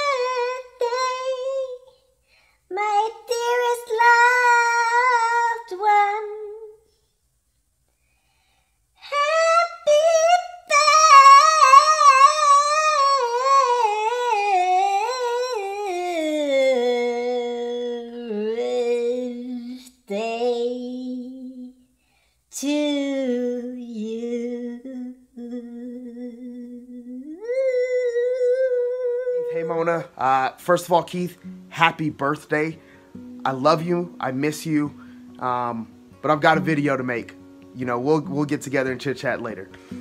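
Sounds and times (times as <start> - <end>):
person humming wordlessly: 10.4 - 21.8, 22.6 - 30.1.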